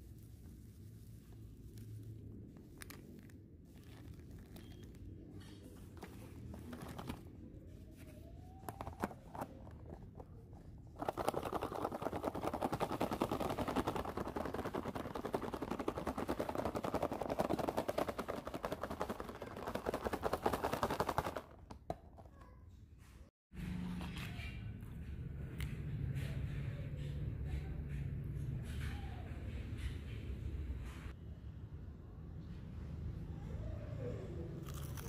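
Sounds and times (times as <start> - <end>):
food rattling in plastic container: 11.0 - 21.7.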